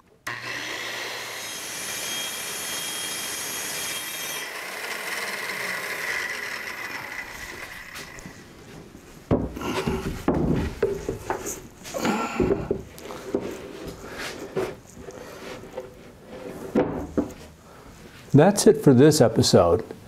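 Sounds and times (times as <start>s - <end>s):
wood scraping on wood: 5.8s - 18.3s
light wooden bumps: 7.6s - 17.6s
wooden panel knocking: 9.3s - 11.4s.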